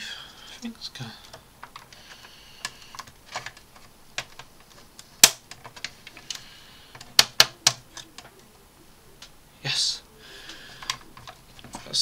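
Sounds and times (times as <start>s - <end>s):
hard plastic parts clicking: 0.6s - 8.5s, 10.5s - 12.0s.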